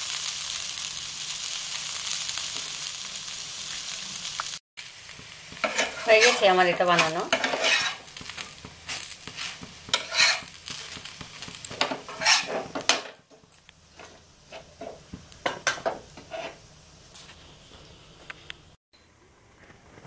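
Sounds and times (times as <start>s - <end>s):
light sizzling: 0.0s - 18.8s
metal spatula scraping griddle: 5.6s - 11.0s, 11.6s - 13.1s, 13.9s - 16.6s.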